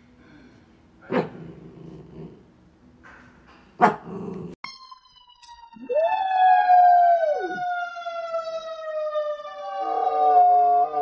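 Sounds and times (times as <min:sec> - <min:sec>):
siren wailing: 0:04.7 - 0:11.0
dog howling: 0:05.9 - 0:07.8, 0:09.7 - 0:11.0.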